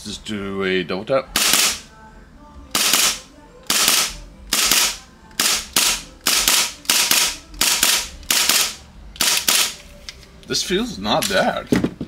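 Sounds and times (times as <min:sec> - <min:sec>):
airsoft pistol shots: 0:01.4 - 0:01.8, 0:02.8 - 0:09.8.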